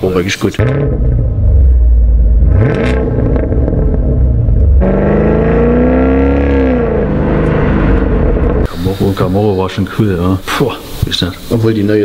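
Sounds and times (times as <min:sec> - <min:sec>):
car engine exhaust drone: 0:00.0 - 0:09.5
engine revving up and down: 0:00.6 - 0:08.7.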